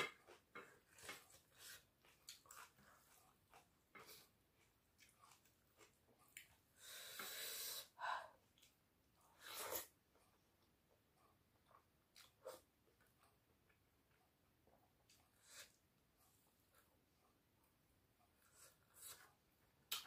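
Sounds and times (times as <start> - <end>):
breathy hissing breaths: 6.8 - 8.4.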